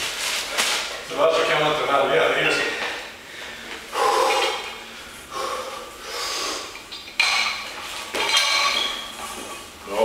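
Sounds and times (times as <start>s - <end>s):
man breathing hard: 3.2s - 6.8s.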